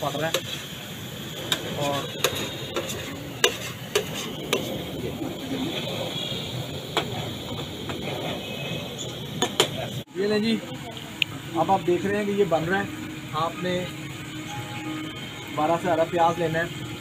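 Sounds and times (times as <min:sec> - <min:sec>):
frying sizzle: 0:00.0 - 0:17.0
metal spatula scraping iron pan: 0:01.9 - 0:04.7.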